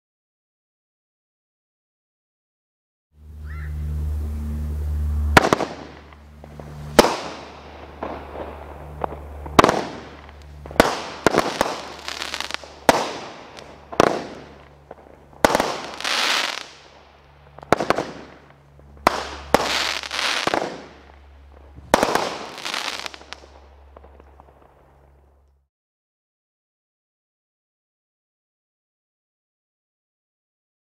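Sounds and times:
firework bangs: 5.3s - 25.1s.

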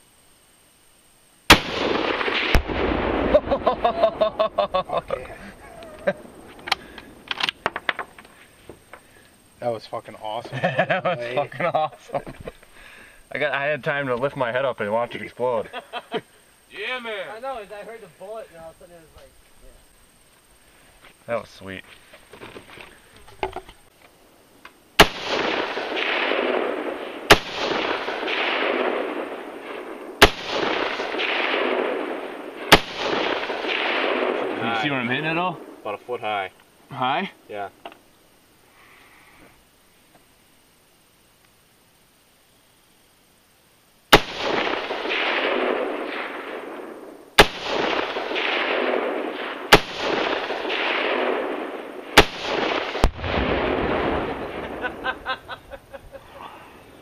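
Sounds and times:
rifle shots: 1.5s - 4.7s, 25.0s - 35.9s, 44.1s - 55.2s.

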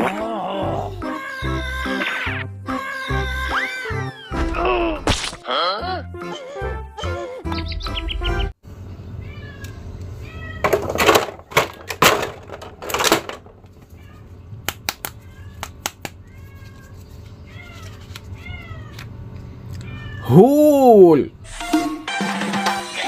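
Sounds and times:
cat meowing: 9.2s - 10.7s, 19.8s - 20.4s.

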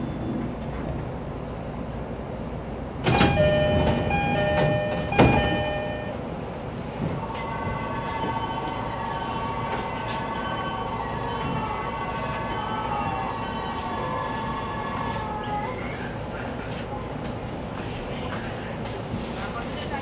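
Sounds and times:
train background hum: 0.0s - 20.0s
electronic door chime: 3.1s - 6.2s.

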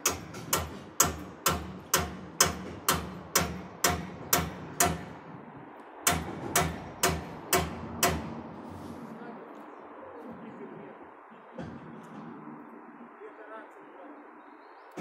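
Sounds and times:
sharp ringing knocks: 0.0s - 5.2s, 6.0s - 8.5s.

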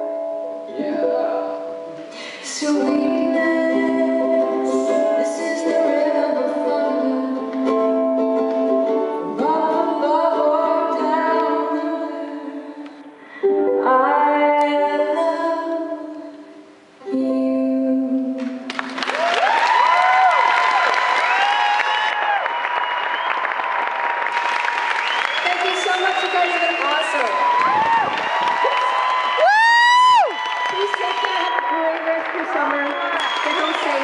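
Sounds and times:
ukulele strumming: 0.0s - 18.9s
woman singing: 0.7s - 7.8s, 9.2s - 12.9s, 13.7s - 18.6s.

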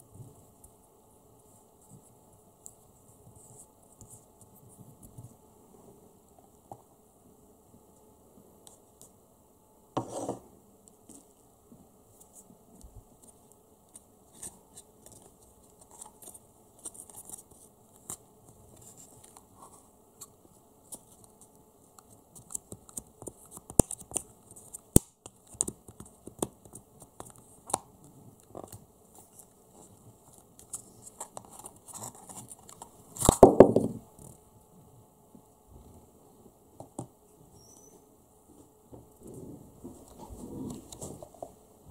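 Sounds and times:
spoon scraping plastic cup: 10.0s - 10.4s.

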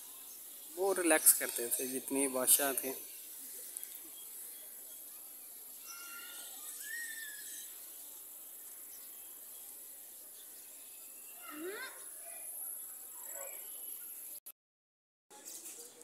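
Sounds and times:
steady high hiss: 0.0s - 11.7s
faint distant calls: 0.7s - 9.4s.

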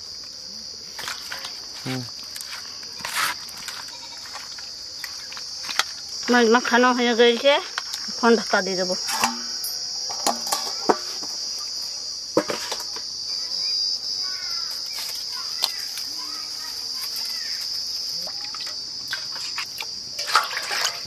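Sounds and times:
insects droning: 0.0s - 21.0s
steel utensils clinking: 9.0s - 10.9s.

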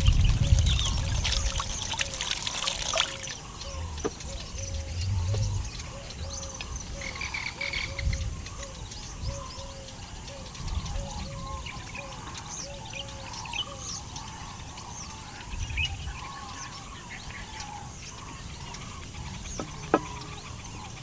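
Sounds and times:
water splashing in clay pot: 0.0s - 3.4s.

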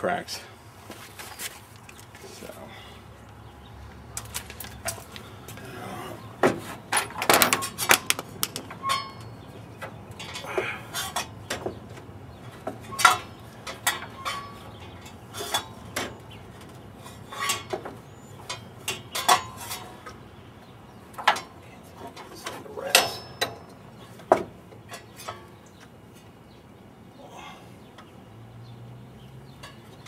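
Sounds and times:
wrench clinking on metal: 22.9s - 23.8s.

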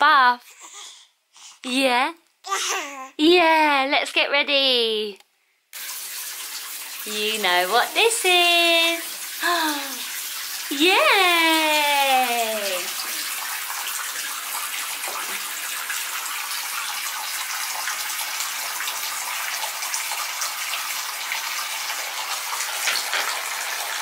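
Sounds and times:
tap water running into bathtub: 5.8s - 24.0s.

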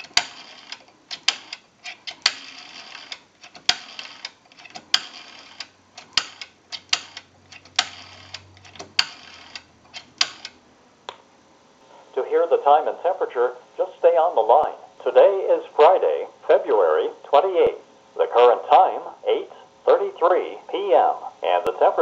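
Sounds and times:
rotary phone dial clicking: 0.0s - 10.6s.

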